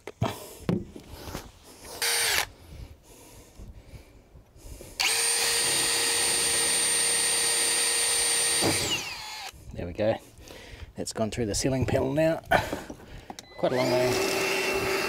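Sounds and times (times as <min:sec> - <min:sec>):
cordless drill boring: 0:02.0 - 0:02.5, 0:05.0 - 0:09.6, 0:13.6 - 0:15.0.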